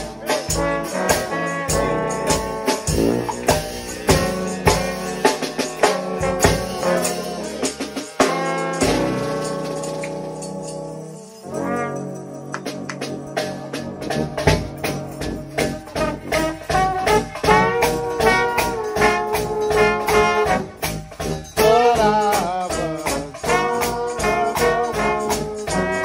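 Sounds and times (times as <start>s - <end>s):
drum kit beat: 0.0s - 10.5s, 12.2s - 26.0s
trombones playing chords: 0.0s - 26.0s.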